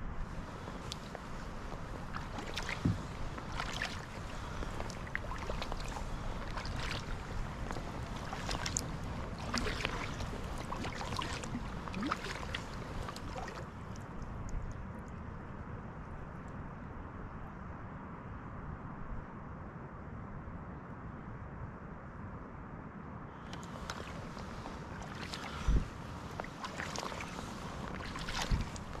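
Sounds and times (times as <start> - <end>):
low steady rumble: 0.0 - 19.3
paddle splashes and drips: 0.2 - 15.2, 23.5 - 29.0.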